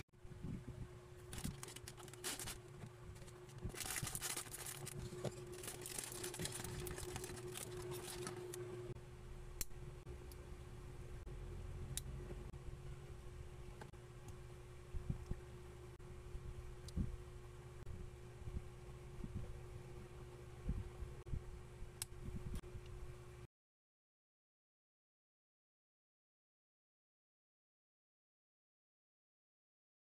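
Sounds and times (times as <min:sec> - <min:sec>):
plastic bag crinkling and tearing: 0:01.2 - 0:08.6.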